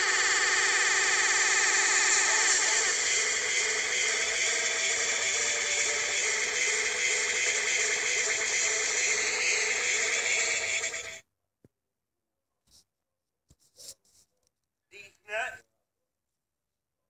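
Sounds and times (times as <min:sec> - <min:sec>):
jumble of music and tones: 0:00.0 - 0:11.2.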